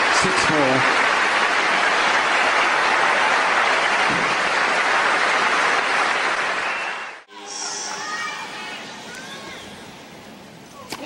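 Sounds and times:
crowd applauding: 0.0 - 7.3.

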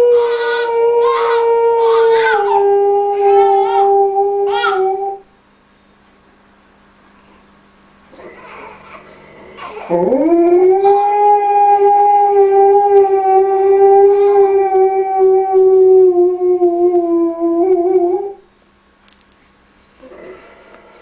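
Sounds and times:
dog howling: 0.0 - 5.2, 9.6 - 18.4.

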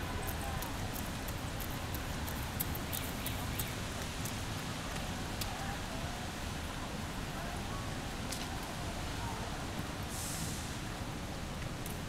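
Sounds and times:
low traffic rumble: 0.0 - 12.0
small ticks: 0.2 - 4.4.

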